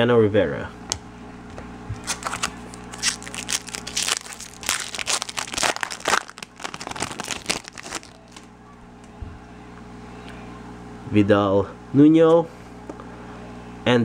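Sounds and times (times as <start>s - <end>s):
foil wrapper tearing and crinkling: 2.0s - 8.5s.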